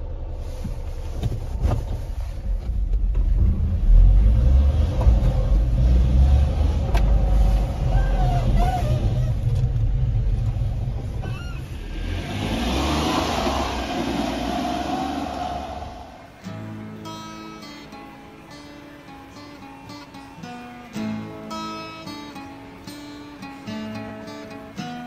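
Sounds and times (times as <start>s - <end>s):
small truck engine running: 3.3s - 16.4s.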